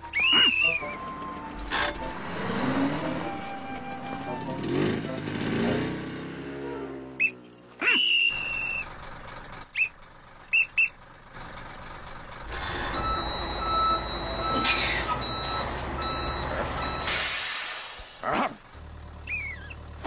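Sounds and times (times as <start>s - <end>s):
van engine running: 0.0s - 6.2s, 7.0s - 20.0s
whistle blasts: 0.1s - 1.0s, 7.2s - 8.9s
reversing alarm beeping: 12.5s - 17.4s.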